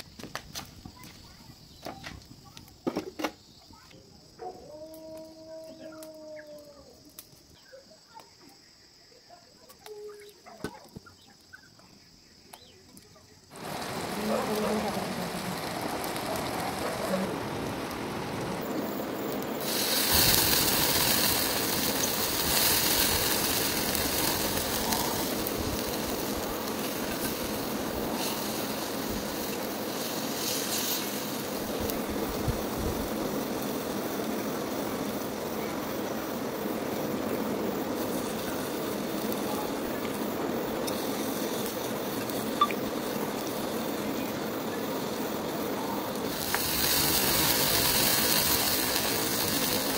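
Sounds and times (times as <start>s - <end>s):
food sizzling on hot stone: 0.0s - 49.9s
sharp crackle: 9.4s - 49.9s
liquor flaring up: 13.5s - 49.9s.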